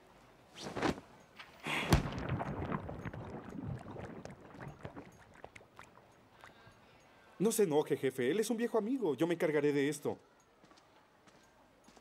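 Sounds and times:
cloth flapping: 0.5 - 1.1, 1.8 - 5.1
cloth rustling: 0.5 - 1.2.

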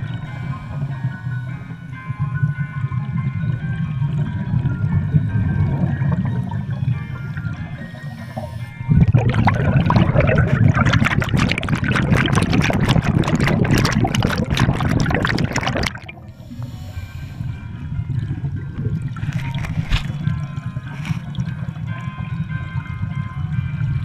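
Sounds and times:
low underwater hum: 0.0 - 24.0
underwater breath bubbles rushing: 4.0 - 22.0.

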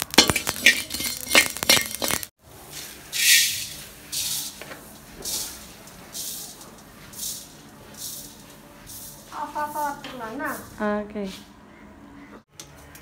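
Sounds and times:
seeds poured into a wok hissing: 0.0 - 9.5
metal spoon scraping in a wok: 0.1 - 10.8.

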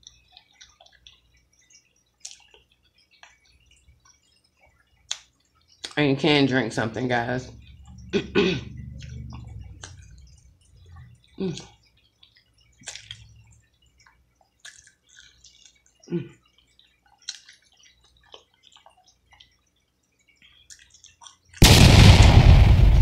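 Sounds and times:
wet chewing and lip smacks: 0.0 - 6.0, 7.5 - 21.6
low mouth sounds: 7.6 - 11.8.

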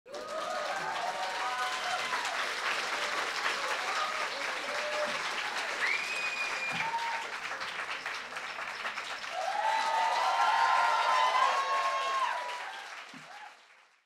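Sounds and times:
whoops and cheering: 0.1 - 2.5, 3.6 - 7.4, 9.3 - 13.6
audience applauding: 0.1 - 14.0.

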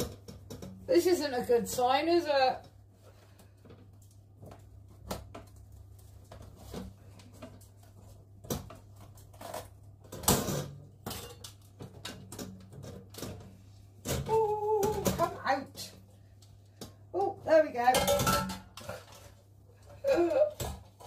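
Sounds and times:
baking tin and rack clattering: 8.4 - 13.5, 17.8 - 19.4.

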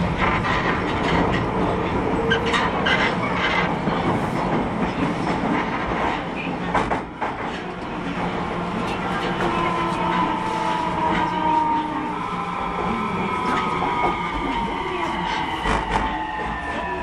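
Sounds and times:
wheel clatter over rail joints: 0.0 - 10.2
train running noise: 0.0 - 17.0.

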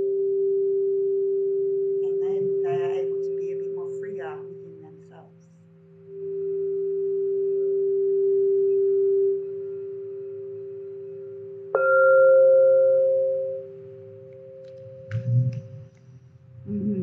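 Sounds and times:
singing bowl ringing: 4.4 - 15.1
singing bowl strike: 11.8 - 15.2.

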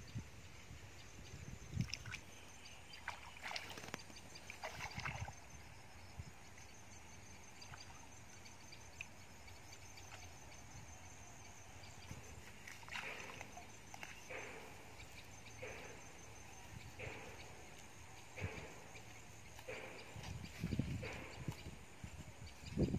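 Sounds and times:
shallow water splashing: 1.7 - 5.6, 12.4 - 14.5.

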